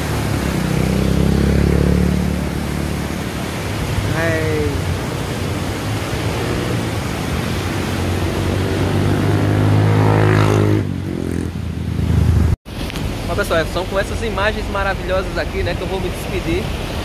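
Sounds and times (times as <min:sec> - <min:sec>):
vehicle engine passing by: 0:00.0 - 0:04.0, 0:05.6 - 0:12.6
river rushing: 0:00.0 - 0:17.0.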